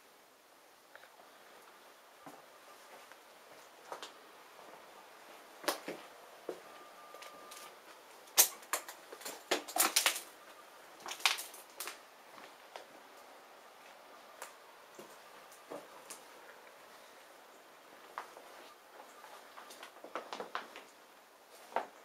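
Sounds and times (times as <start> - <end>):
footsteps crunching over debris: 2.2 - 13.0, 18.0 - 20.9.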